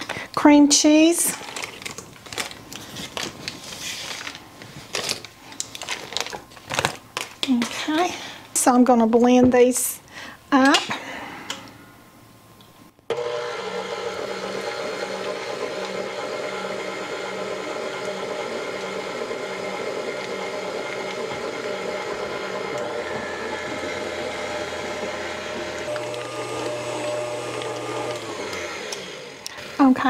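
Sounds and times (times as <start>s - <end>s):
stand mixer motor running: 13.1s - 29.9s
whisk beating in steel bowl: 13.8s - 29.9s.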